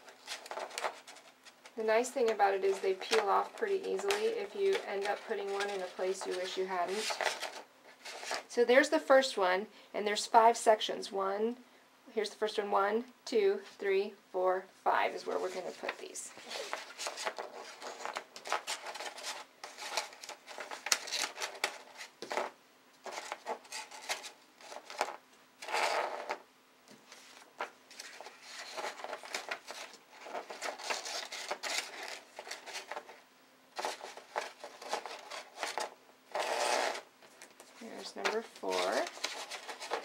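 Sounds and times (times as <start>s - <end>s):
stiff paper sheets rustling: 0.0s - 8.5s, 15.2s - 25.2s, 27.1s - 33.2s, 33.8s - 40.0s.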